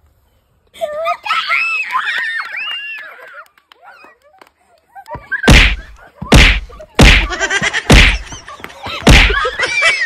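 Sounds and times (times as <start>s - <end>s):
children shouting and laughing: 0.7s - 10.0s
loud whacks: 5.5s - 8.4s, 9.0s - 9.4s
children squealing: 8.3s - 10.0s.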